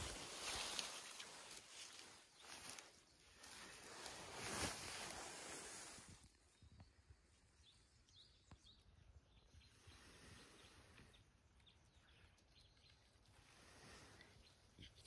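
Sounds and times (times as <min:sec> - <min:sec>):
rustle of dry forest litter: 0:00.0 - 0:06.7, 0:09.5 - 0:15.0
faint bird chirps: 0:06.3 - 0:15.0.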